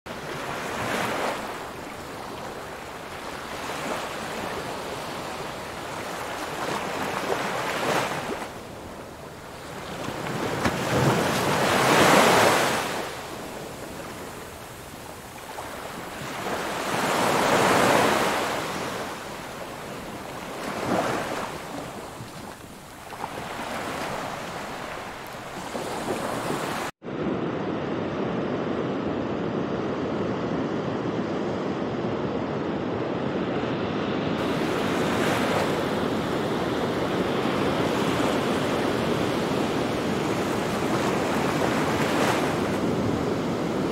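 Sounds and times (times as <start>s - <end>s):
small waves washing ashore: 0.1s - 27.0s, 34.1s - 43.9s
hiss of sea and wind: 0.1s - 43.9s.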